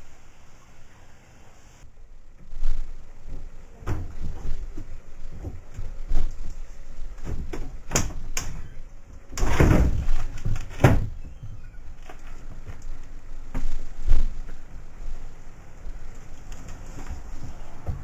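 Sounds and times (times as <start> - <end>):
bump of someone climbing in: 2.4 - 12.8, 13.4 - 14.6, 16.6 - 18.0
window knocks and rattles: 9.4 - 11.6.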